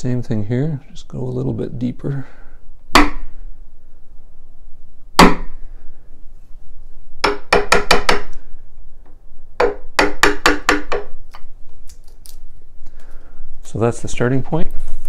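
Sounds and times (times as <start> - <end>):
hammer striking chisel handle: 2.9 - 3.3, 7.2 - 8.4, 9.6 - 11.1.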